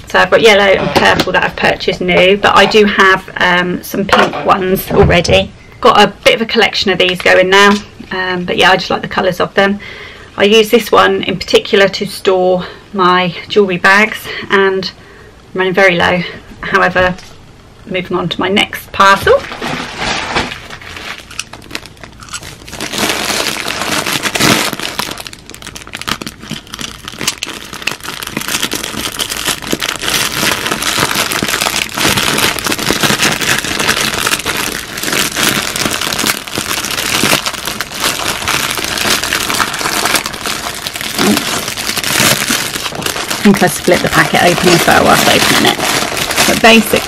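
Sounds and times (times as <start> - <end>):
plastic bag tearing and crinkling: 19.0 - 47.0
plastic packet rustling: 19.0 - 47.0.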